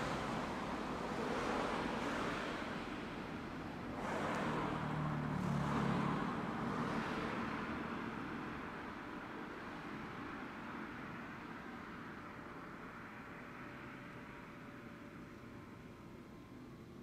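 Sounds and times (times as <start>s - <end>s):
vehicle passing: 4.0s - 8.4s.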